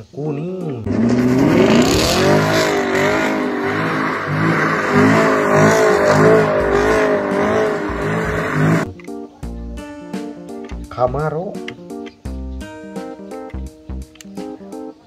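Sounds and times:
car engine revving: 0.8 - 8.9.

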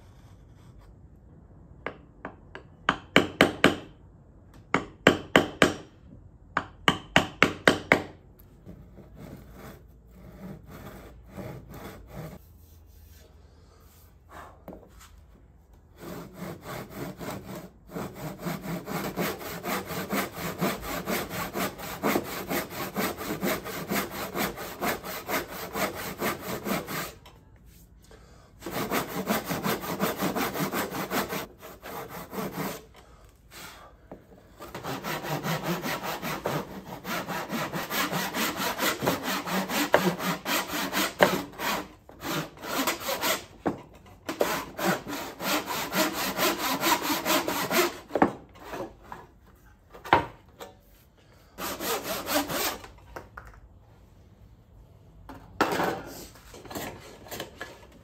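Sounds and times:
hand saw cutting wood: 8.6 - 12.4, 15.9 - 27.3, 28.6 - 33.8, 34.6 - 49.3, 51.6 - 53.0.

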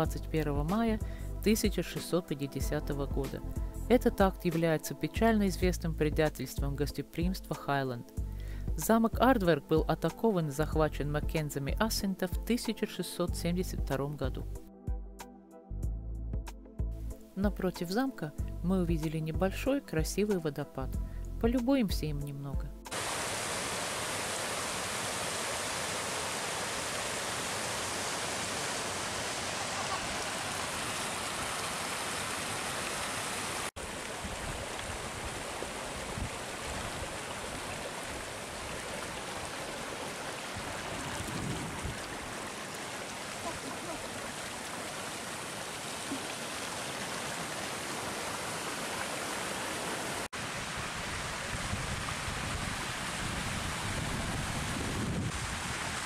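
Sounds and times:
water rushing over rocks: 22.9 - 56.0.

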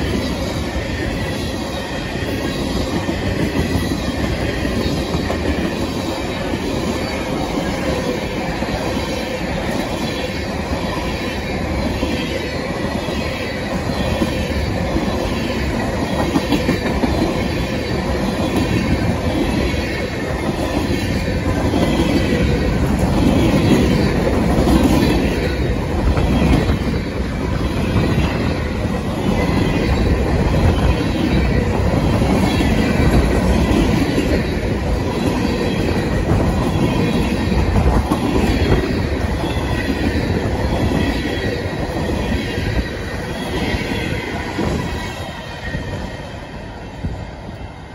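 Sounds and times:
train wheels rumbling on rail: 0.0 - 47.9.

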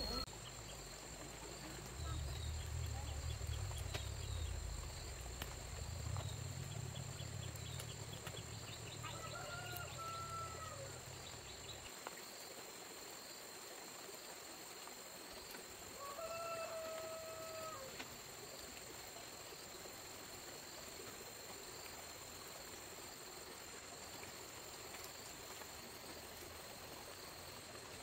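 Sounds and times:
low rumble: 0.0 - 9.1
insects buzzing: 0.0 - 28.0.

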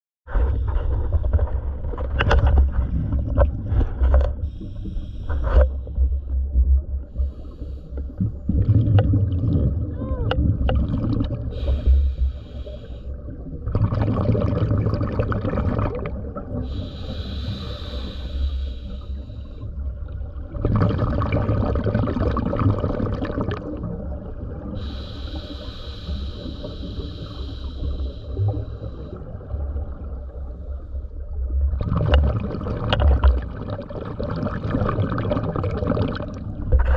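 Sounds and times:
low underwater rumble: 0.3 - 36.9
gurgle of exhaled bubbles: 1.2 - 4.4, 8.1 - 12.2, 13.2 - 18.0, 20.0 - 25.1, 31.2 - 36.9
regulator inhale hiss: 4.4 - 6.2, 7.1 - 8.2, 11.5 - 13.2, 16.6 - 19.7, 24.8 - 29.3.

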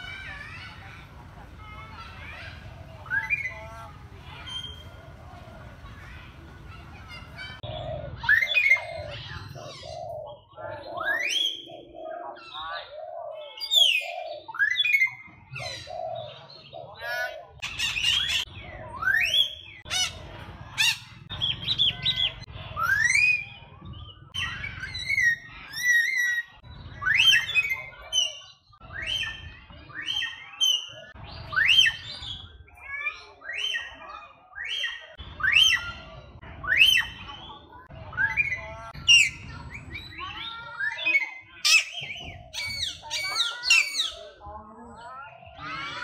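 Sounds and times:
birds squawking and chirping: 0.0 - 46.0
birds whistling rising calls: 0.0 - 46.0.

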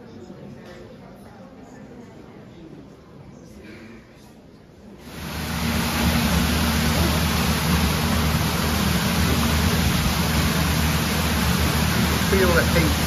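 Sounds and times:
water cascading over stone: 5.1 - 13.0.

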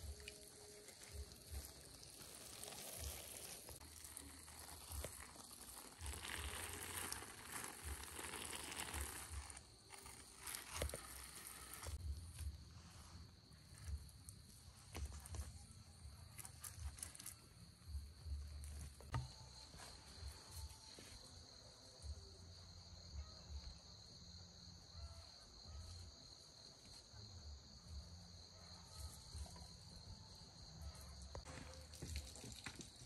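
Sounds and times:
insects chirring: 0.0 - 33.0.

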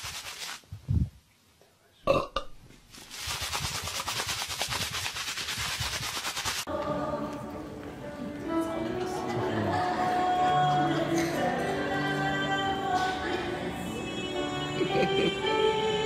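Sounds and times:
person burping loudly: 2.1 - 2.6
music: 6.7 - 16.0.

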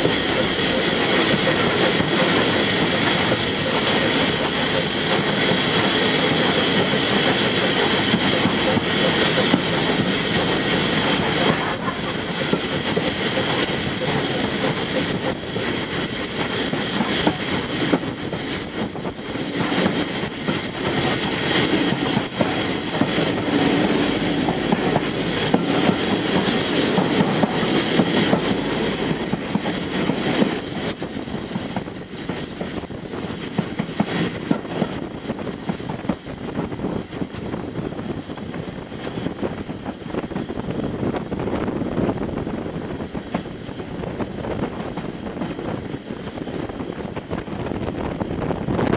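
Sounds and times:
steam locomotive working: 0.0 - 48.9
train wheels on rails: 0.0 - 48.9.

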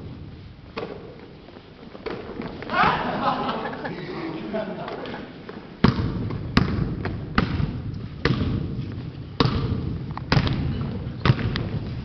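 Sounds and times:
basketball bouncing on hard floor: 5.8 - 11.9.

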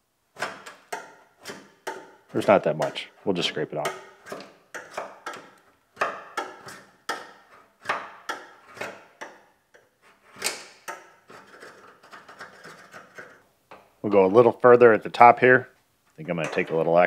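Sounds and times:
hand scraper scraping seam sealer: 10.0 - 13.4.

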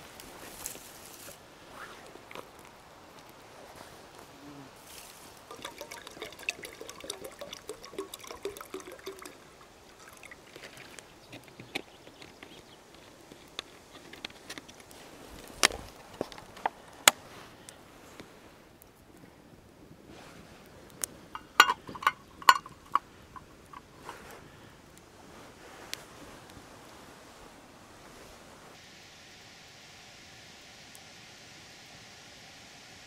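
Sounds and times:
water pouring into metal tin: 4.9 - 11.6, 21.4 - 24.1.

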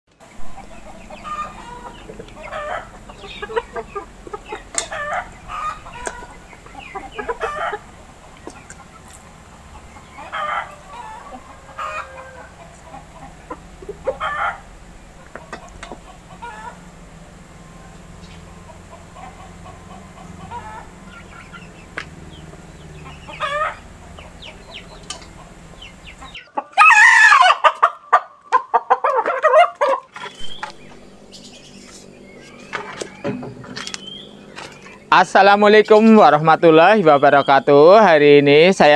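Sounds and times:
chickens clucking: 0.1 - 38.9
rooster crowing: 0.3 - 8.0, 9.8 - 15.0, 16.1 - 17.9, 18.5 - 28.4.

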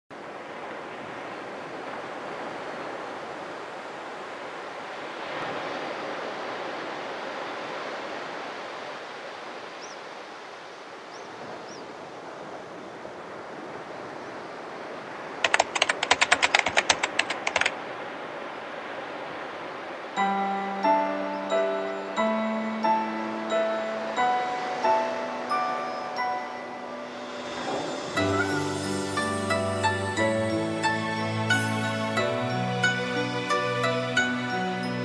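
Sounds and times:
waves breaking on shore: 0.1 - 35.0
typewriter clicks: 15.4 - 17.8.

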